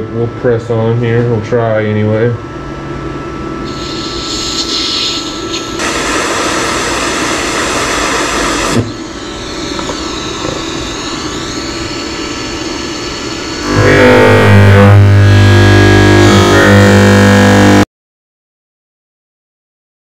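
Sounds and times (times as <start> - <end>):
welder fan noise: 0.0 - 17.9
hissing welding arc: 3.7 - 17.8.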